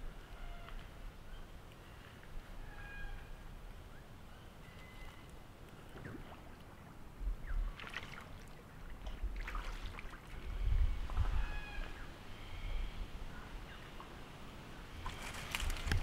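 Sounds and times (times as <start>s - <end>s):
faint bird whistles: 4.6s - 5.3s
animal splashing in shallow water: 7.6s - 10.5s, 14.9s - 16.0s.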